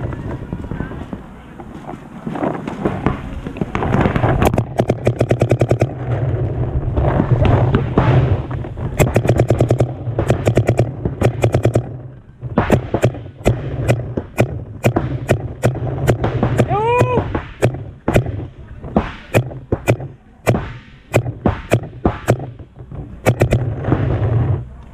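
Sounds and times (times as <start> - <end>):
paintball marker rapid firing: 2.8 - 6.0, 7.8 - 12.0, 12.6 - 24.6
rattle of other shots: 3.7 - 6.1, 7.8 - 16.7, 17.3 - 24.6.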